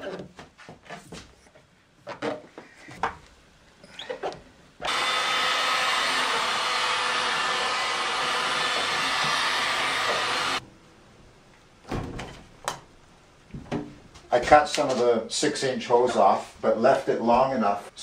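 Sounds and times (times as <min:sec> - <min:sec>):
heat gun blowing: 0:04.8 - 0:10.6.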